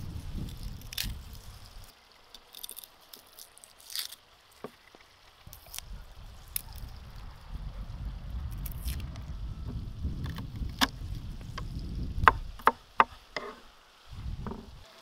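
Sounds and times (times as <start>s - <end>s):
wind rumble on microphone: 0.0s - 1.9s, 5.4s - 12.8s, 14.1s - 14.9s
garlic peel crackling: 0.0s - 7.0s, 8.5s - 9.2s.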